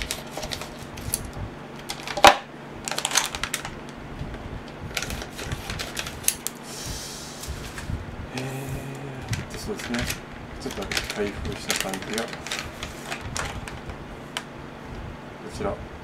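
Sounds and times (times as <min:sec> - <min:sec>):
scissors snipping foil bag: 0:00.0 - 0:01.3, 0:01.9 - 0:03.8, 0:04.9 - 0:06.6, 0:09.3 - 0:13.8
foil bag crinkling: 0:00.0 - 0:03.8, 0:04.9 - 0:06.6, 0:09.3 - 0:14.4.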